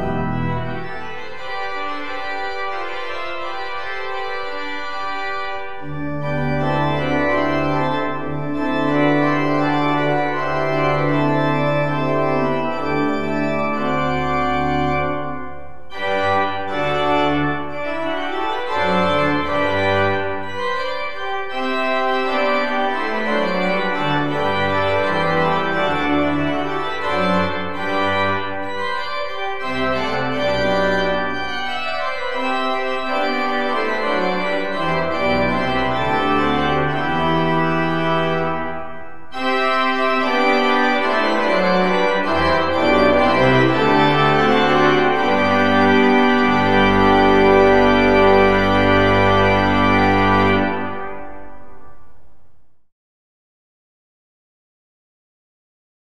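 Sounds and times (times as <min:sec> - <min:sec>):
pipe organ playing chords: 0:00.0 - 0:52.0.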